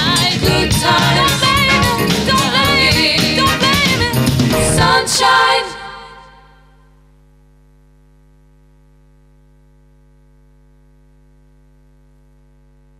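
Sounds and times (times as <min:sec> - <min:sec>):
mains buzz: 0:06.3 - 0:12.9.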